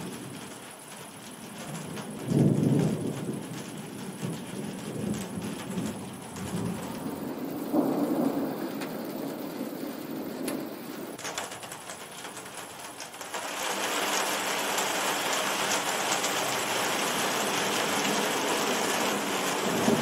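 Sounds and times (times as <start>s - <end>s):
steady rain: 0.0s - 20.0s
thunder rumbling: 1.3s - 11.8s, 16.4s - 20.0s.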